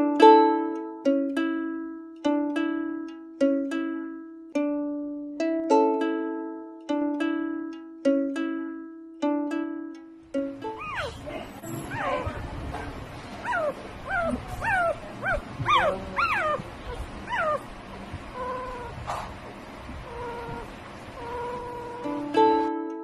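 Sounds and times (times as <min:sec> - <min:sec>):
puppy whimpering: 0:10.6 - 0:22.6.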